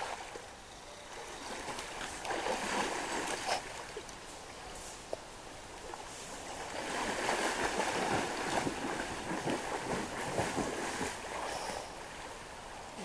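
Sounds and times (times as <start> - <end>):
person swimming and splashing: 1.1 - 4.0, 6.6 - 12.2.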